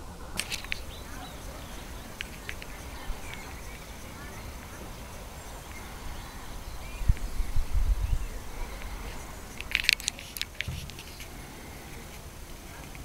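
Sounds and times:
low thuds on the microphone: 10.6 - 11.1.

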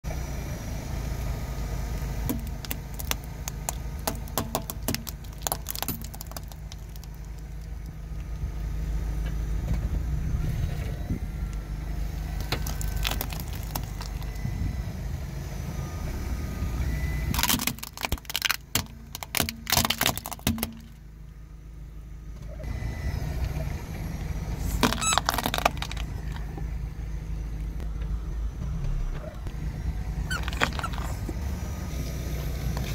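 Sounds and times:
car engine running low: 0.0 - 32.9
plastic pegs cracking: 2.3 - 7.9, 17.3 - 21.0, 24.8 - 26.6, 30.3 - 31.3.

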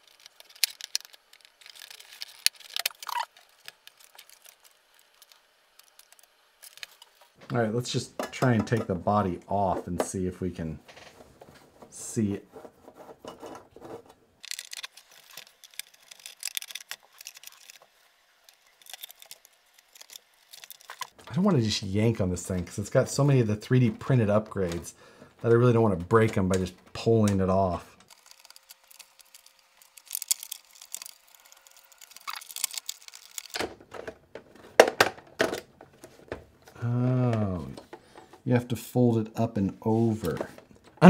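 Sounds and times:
plastic toy truck clicks and rattles: 0.0 - 7.2, 14.4 - 17.9, 18.5 - 21.2, 28.0 - 36.2.

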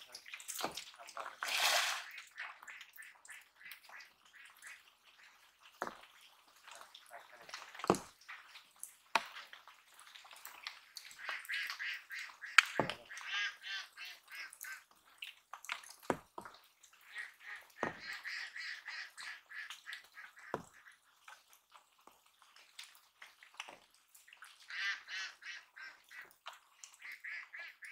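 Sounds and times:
ducks quacking: 1.8 - 5.4, 10.8 - 14.9, 17.0 - 21.0, 24.6 - 26.4, 27.0 - 27.9.

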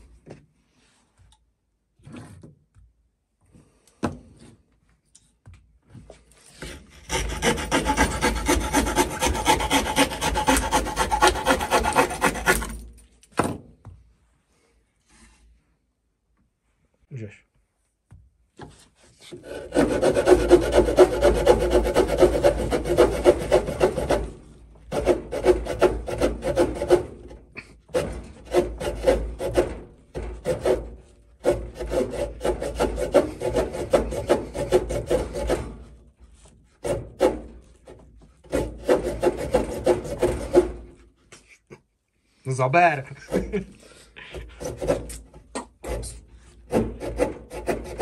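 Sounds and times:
small saw cutting wood: 6.6 - 13.0, 19.3 - 41.1, 44.4 - 48.0.

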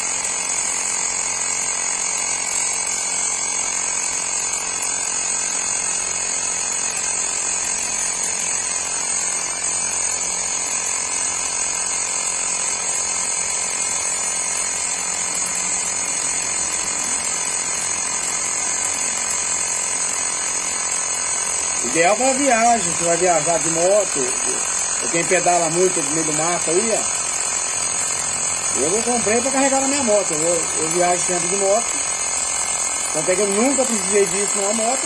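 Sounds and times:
electric tyre inflator running: 0.0 - 35.0.

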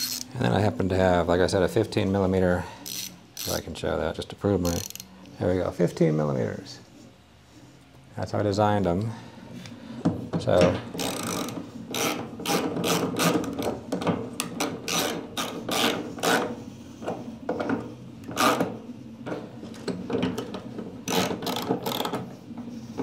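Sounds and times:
wrench clicking and scraping: 0.0 - 0.3, 2.8 - 3.6, 4.6 - 5.1, 11.0 - 13.4, 14.9 - 16.4, 21.1 - 22.2.

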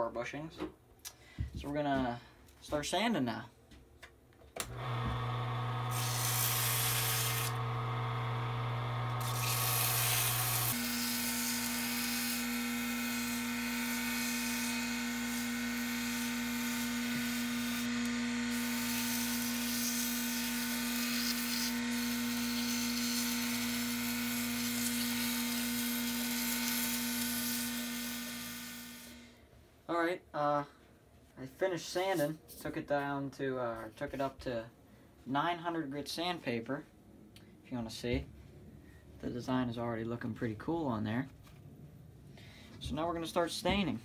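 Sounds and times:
lathe motor humming: 4.7 - 21.0.

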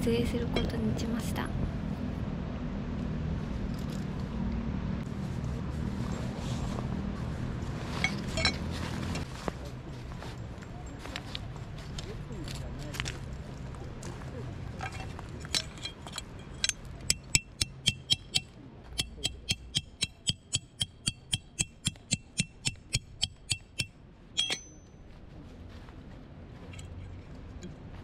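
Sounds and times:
hammer striking metal tent peg: 16.6 - 24.8.

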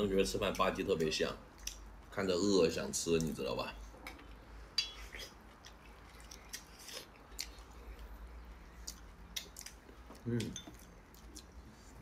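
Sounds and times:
man chewing and lip-smacking: 1.5 - 1.9, 5.0 - 12.0.

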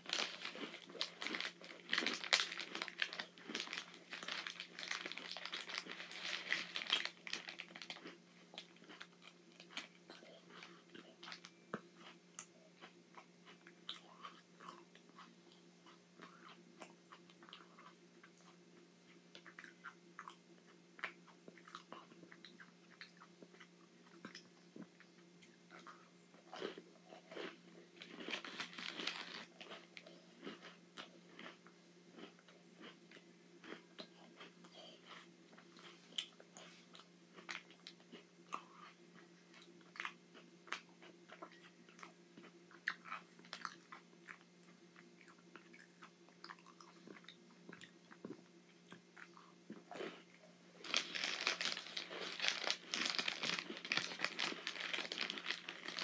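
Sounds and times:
plastic wrapper crinkling: 0.0 - 8.0, 28.3 - 29.5, 50.8 - 56.0
chewing and crunching cookies: 0.0 - 56.0.

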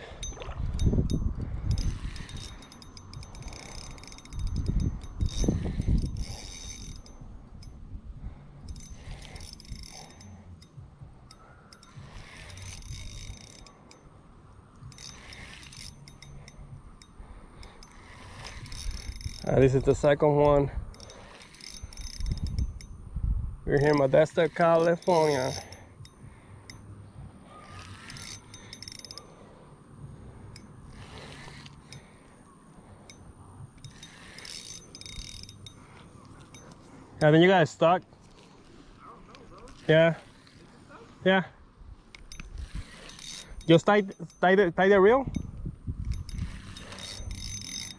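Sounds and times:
water rumble: 0.0 - 6.2
fishing reel clicking whir: 0.0 - 41.4, 42.1 - 47.9.

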